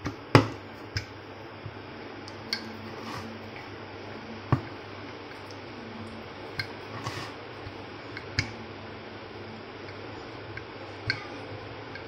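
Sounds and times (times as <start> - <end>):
steady background hum: 0.0 - 12.0
rolling pin rolling dough: 2.4 - 12.0.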